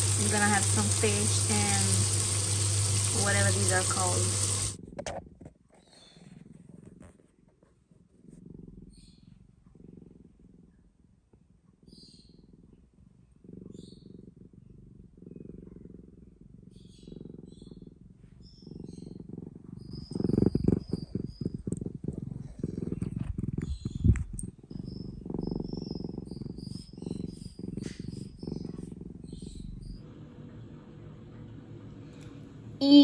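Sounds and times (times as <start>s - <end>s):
cat purring: 0.0s - 33.0s
fur rubbing on microphone: 6.1s - 8.4s.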